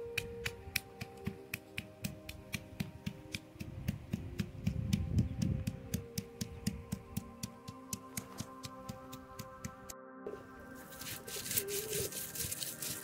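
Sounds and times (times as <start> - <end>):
background music with ticking beat: 0.0 - 10.0
stone pounding garlic: 0.1 - 9.5.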